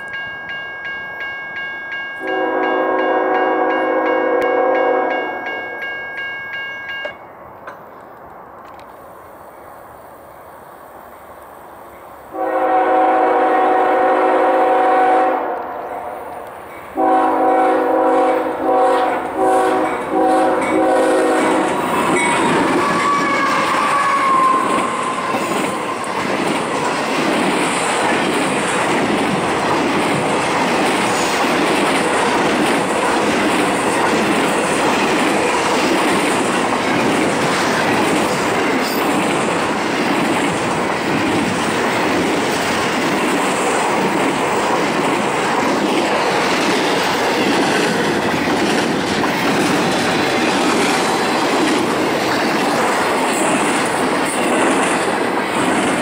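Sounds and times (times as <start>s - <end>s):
diesel locomotives passing: 0.0s - 56.0s
train air horn blasts: 2.2s - 5.4s, 12.3s - 16.4s, 17.0s - 21.8s
wheel clatter on rails: 20.7s - 56.0s.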